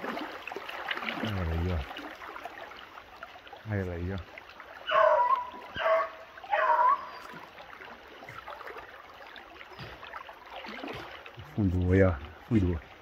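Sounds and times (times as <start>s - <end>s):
faint trickle of running water: 0.0s - 13.0s
dog baying: 4.9s - 7.4s.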